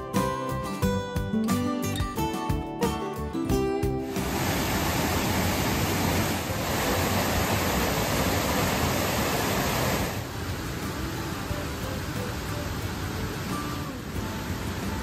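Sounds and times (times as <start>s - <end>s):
waterfall rushing: 4.0s - 15.0s.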